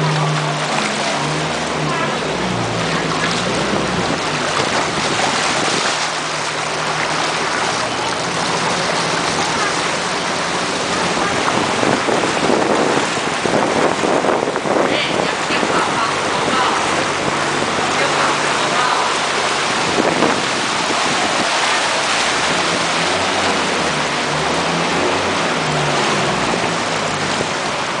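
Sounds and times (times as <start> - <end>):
vehicle rushing through floodwater: 0.0 - 28.0.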